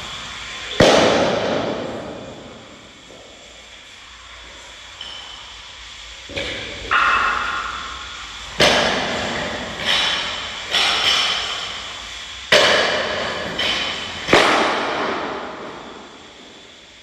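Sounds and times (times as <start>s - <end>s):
weight plates clanking on barbell: 6.3s - 8.0s.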